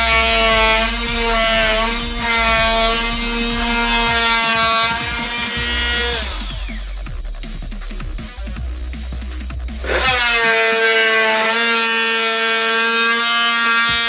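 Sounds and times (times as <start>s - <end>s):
oscillating multi-tool cutting wood: 0.0s - 7.0s, 9.8s - 14.0s.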